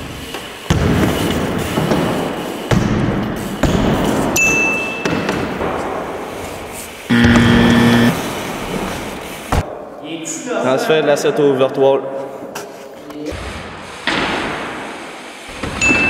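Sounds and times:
bike tyres rolling on ramps: 0.0 - 4.4, 5.1 - 7.1
steady pitched hum: 7.1 - 8.2.

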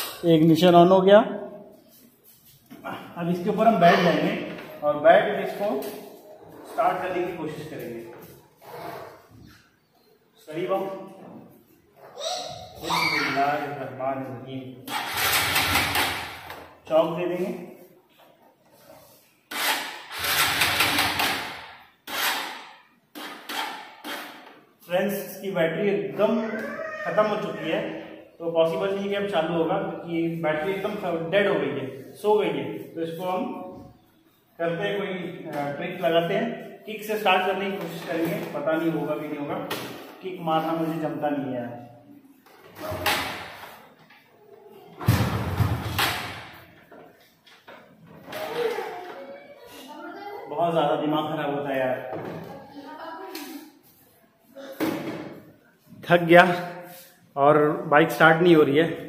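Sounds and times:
motorcycle starter cranking: 14.9 - 15.9, 19.5 - 21.2.

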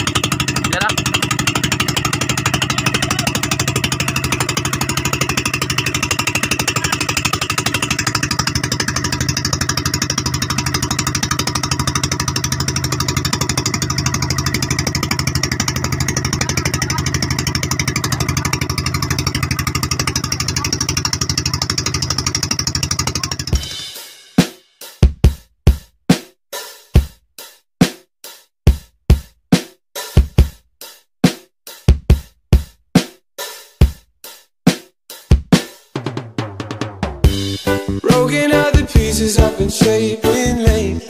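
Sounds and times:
boat engine running: 0.0 - 23.8, 37.2 - 41.0.

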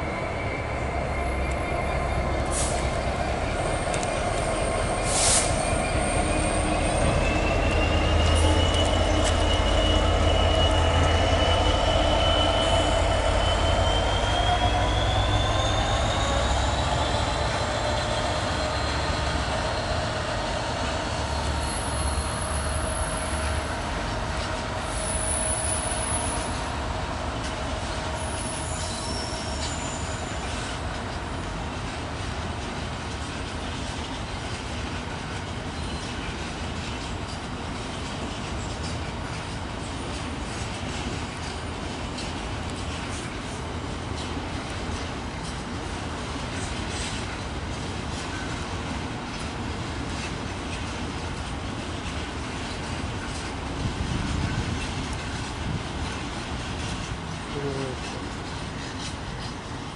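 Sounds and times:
high whistling tone: 0.0 - 23.7
diesel locomotive rumble: 0.0 - 59.9
train wheel squeals: 0.0 - 59.9.

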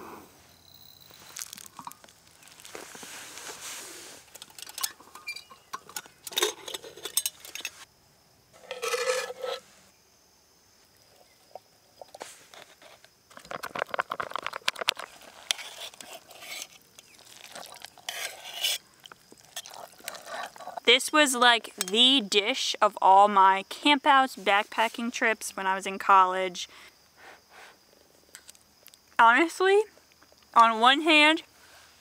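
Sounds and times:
utensil scraping food into pot: 8.6 - 9.7, 14.9 - 20.8.

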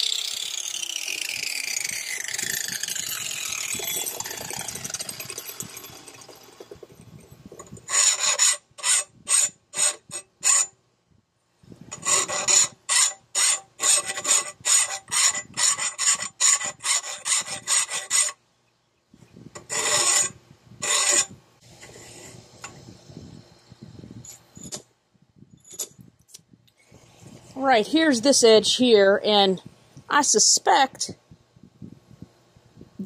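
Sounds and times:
hand file rasping on steel: 7.8 - 10.7, 12.0 - 18.4, 19.6 - 21.3.

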